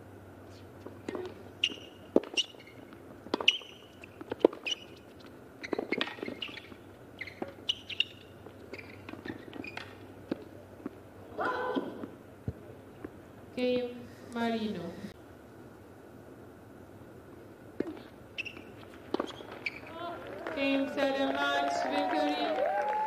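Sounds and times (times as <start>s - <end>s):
racket hitting tennis ball: 0.8s - 11.0s, 17.8s - 19.7s
shoe squeaks on court: 1.1s - 10.1s, 17.8s - 20.0s.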